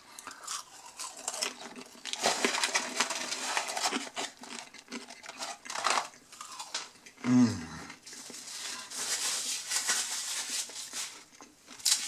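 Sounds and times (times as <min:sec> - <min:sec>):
paper carton crinkling: 0:01.4 - 0:06.2, 0:08.1 - 0:12.0.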